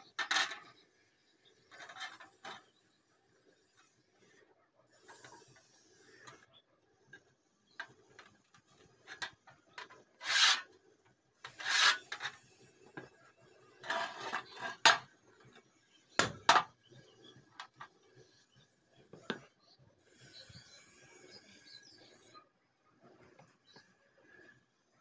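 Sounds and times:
metal scraping on steel strip: 0.0 - 0.8, 1.5 - 2.8, 5.0 - 6.5, 7.7 - 10.8, 11.4 - 15.6.

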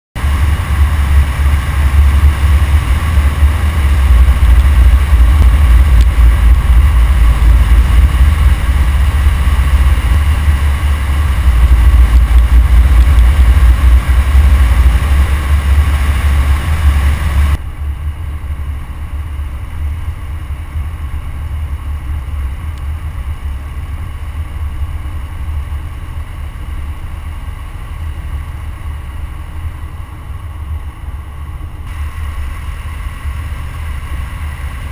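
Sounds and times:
wind buffeting: 0.2 - 17.6
car road noise: 0.2 - 34.9.

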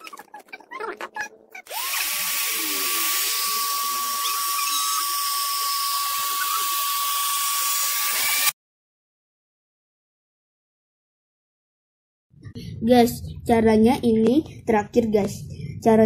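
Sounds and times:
electric air pump whining: 1.6 - 8.6.

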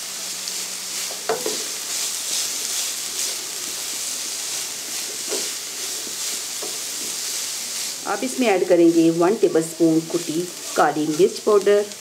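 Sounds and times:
vegetables sizzling in a frying pan: 0.0 - 12.0
spatula scraping a pan: 1.0 - 8.4, 9.7 - 11.6.

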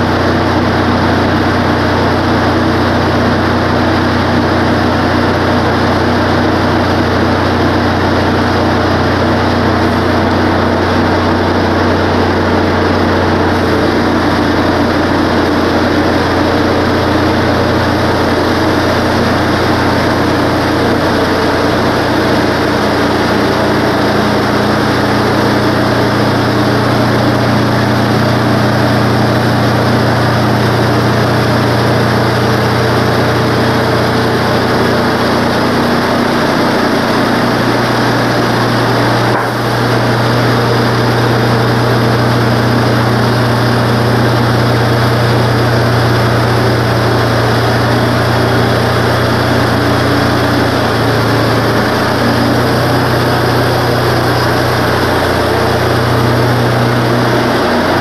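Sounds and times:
sawmill engine running: 0.0 - 58.0
band blade cutting wood: 39.0 - 39.8.

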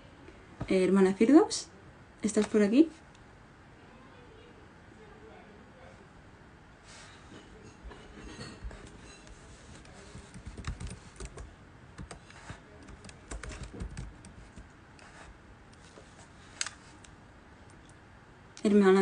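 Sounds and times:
typing on a keyboard: 10.1 - 14.6.

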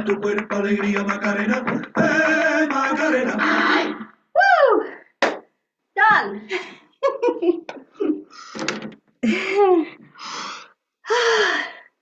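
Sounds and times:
women exclaiming over video call: 3.4 - 5.0
women laughing: 6.5 - 8.3, 9.2 - 10.0
women gasping for breath: 9.2 - 12.0.

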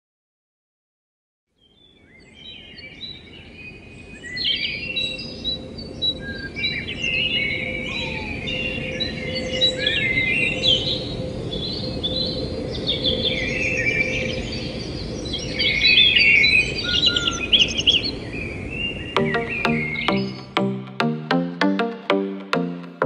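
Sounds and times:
birds chirping and trilling: 4.2 - 20.4.

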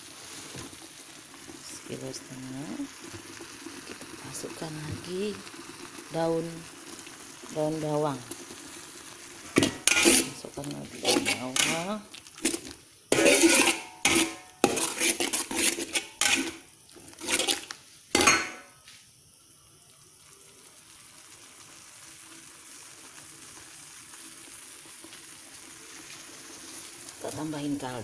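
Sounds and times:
faint steady hiss: 0.0 - 28.0
metal spatula scraping a wok: 9.5 - 18.6.

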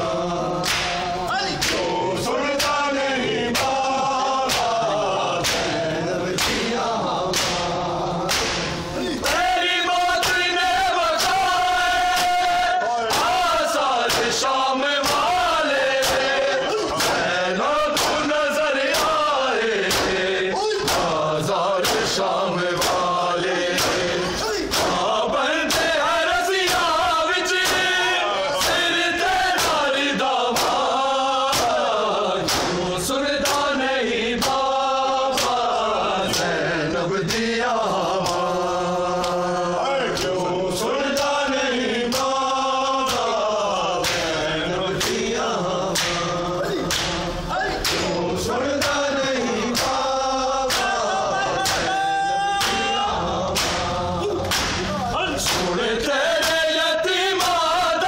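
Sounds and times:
men chanting in unison: 0.0 - 58.0
hands slapping chests: 0.6 - 1.9, 2.6 - 2.8, 3.5 - 4.8, 5.4 - 9.5, 14.0 - 15.3, 15.9 - 17.3, 17.9 - 18.3, 19.8 - 20.2, 20.8 - 21.2, 21.8 - 22.2, 22.8 - 25.1, 29.5 - 29.9, 30.5 - 30.9, 31.5 - 32.8, 33.4 - 33.7, 34.4 - 34.7, 35.3 - 35.6, 42.1 - 42.4, 44.0 - 44.4, 45.0 - 45.2, 45.9 - 48.2, 48.8 - 49.0, 49.7 - 50.0, 50.7 - 51.0, 51.6 - 52.0, 52.6 - 52.9, 53.5 - 55.8.

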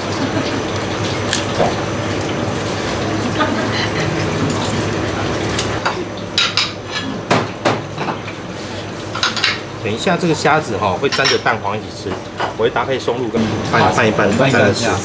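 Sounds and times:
glass bowls clinking: 11.0 - 12.7.

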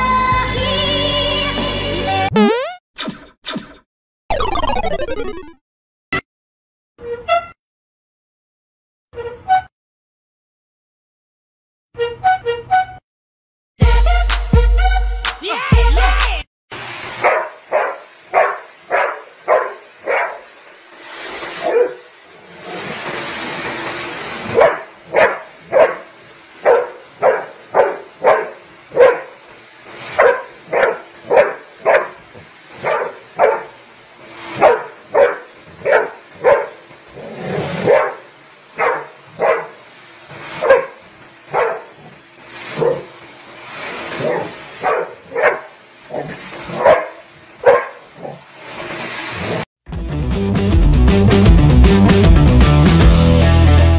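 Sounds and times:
dog barking: 17.2 - 20.5, 21.6 - 22.0, 24.5 - 29.4, 30.2 - 32.2, 32.8 - 33.8, 34.6 - 39.8, 40.6 - 42.1, 42.8 - 43.1, 44.2 - 48.4.

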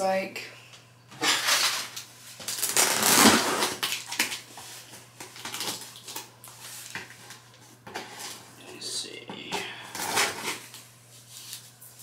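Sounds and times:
knife slicing packing tape: 2.4 - 4.3.

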